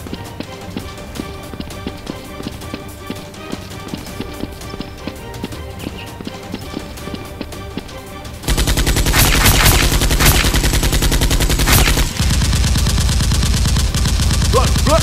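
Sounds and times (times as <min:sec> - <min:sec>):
background music: 0:00.0 - 0:15.0
rapid automatic gunfire: 0:08.4 - 0:15.0
toy blasters firing: 0:08.5 - 0:15.0.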